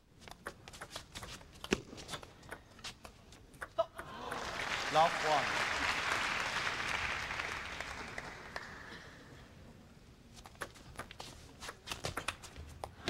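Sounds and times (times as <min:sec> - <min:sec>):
applause: 0:04.2 - 0:09.2.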